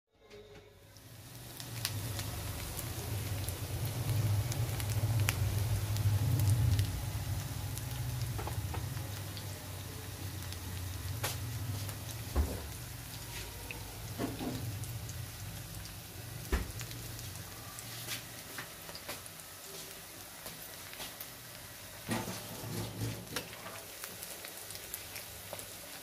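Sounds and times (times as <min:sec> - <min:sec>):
food sizzling in oil: 0:01.0 - 0:26.0
oil popping and crackling: 0:01.0 - 0:26.0
low steady rumble: 0:01.5 - 0:16.9.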